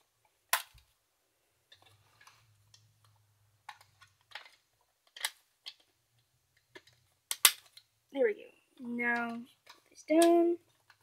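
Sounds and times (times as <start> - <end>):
plastic parts clicking into place: 0.5 - 0.9, 1.7 - 7.9, 9.1 - 11.0.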